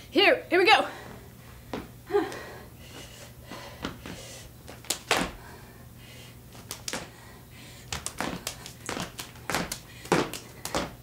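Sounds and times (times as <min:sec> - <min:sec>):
feet landing on wooden floor: 0:03.8 - 0:05.4, 0:08.0 - 0:11.0.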